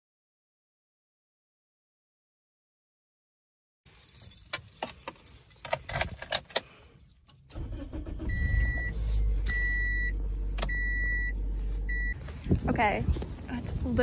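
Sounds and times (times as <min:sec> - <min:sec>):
sharp clicks and rattles: 0:03.9 - 0:07.8
car engine idling: 0:07.3 - 0:12.5
dashboard warning chime beeping: 0:07.9 - 0:12.2.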